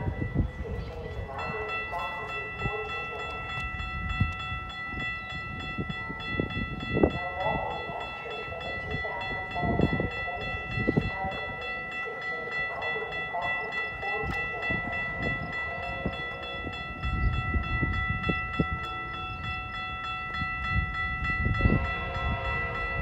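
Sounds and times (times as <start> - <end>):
steady high-pitched ringing: 0.0 - 23.0
distant train air horn: 21.6 - 23.0.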